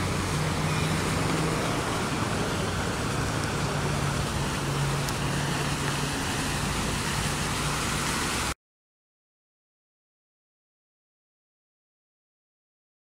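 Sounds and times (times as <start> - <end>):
fountain water splashing: 0.0 - 8.6
road traffic engines humming: 0.0 - 8.6.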